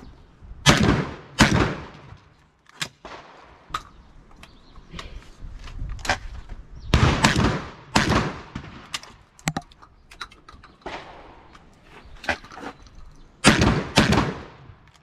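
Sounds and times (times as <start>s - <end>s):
shotgun shots with echo: 0.6s - 2.0s, 6.9s - 8.9s, 13.4s - 14.7s.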